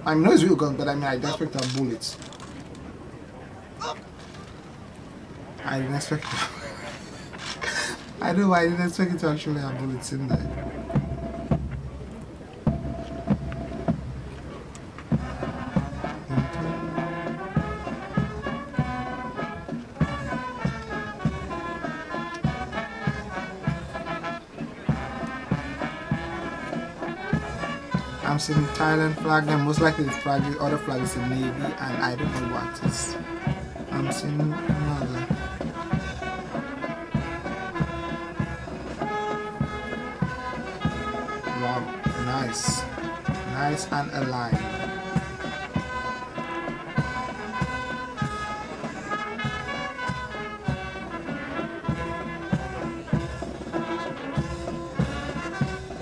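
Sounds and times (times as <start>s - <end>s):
horns playing a melody: 0.0s - 4.2s, 5.4s - 56.0s
brass band music: 0.0s - 56.0s
steady drum beat: 6.4s - 56.0s
steady low beat: 10.3s - 18.2s.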